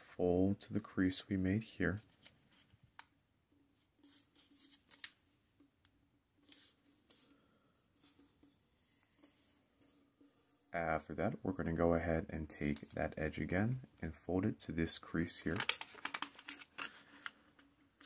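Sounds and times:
paper being folded and creased: 4.0s - 5.2s, 6.4s - 7.3s, 15.4s - 17.4s.

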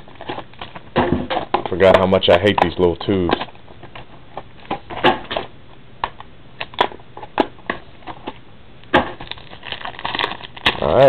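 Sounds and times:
cardboard boxes clicking and scraping: 0.0s - 5.5s.

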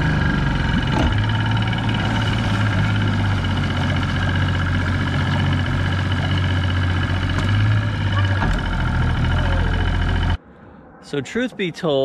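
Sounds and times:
outboard motor idling: 0.0s - 10.4s.

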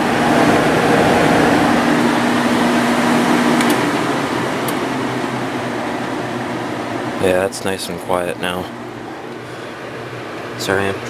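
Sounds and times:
low hum: 0.0s - 7.2s
air conditioner blower rushing: 0.0s - 11.0s.

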